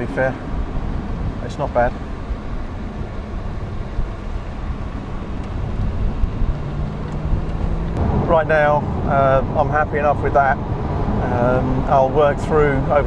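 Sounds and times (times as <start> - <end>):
road noise and car engine: 0.0 - 13.0.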